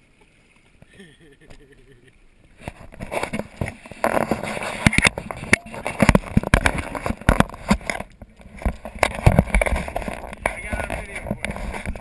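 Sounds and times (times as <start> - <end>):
water slapping against hull: 2.5 - 12.0
knocks and crackles: 2.6 - 12.0.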